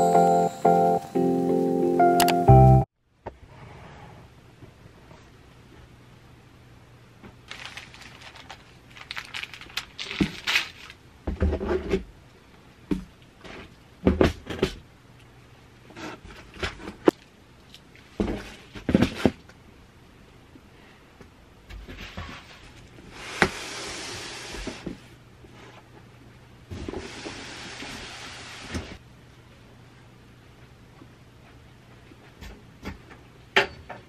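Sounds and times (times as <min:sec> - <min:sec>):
sharp click: 0:02.2 - 0:02.4.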